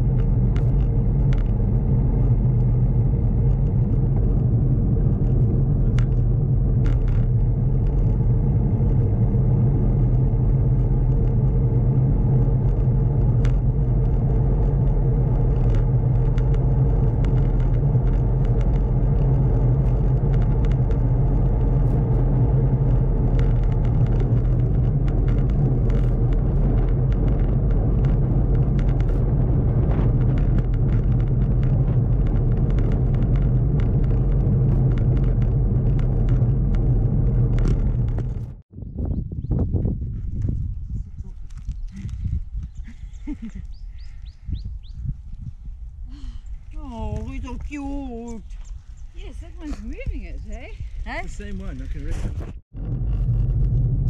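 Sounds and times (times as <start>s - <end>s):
small clicks and rattles: 0.0s - 38.6s
bicycle tyres rumbling on asphalt: 0.0s - 54.0s.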